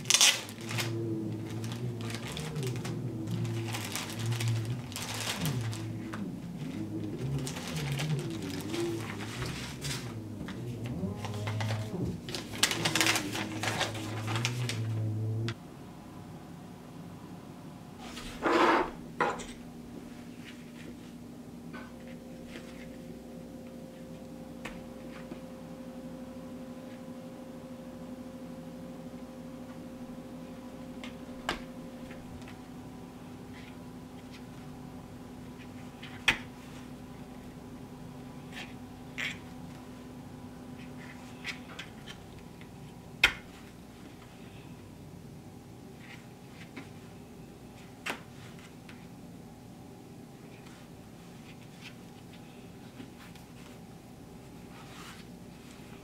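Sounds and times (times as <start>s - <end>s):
plastic bag and paper crinkling: 0.0s - 15.1s
low steady hum: 0.0s - 56.0s.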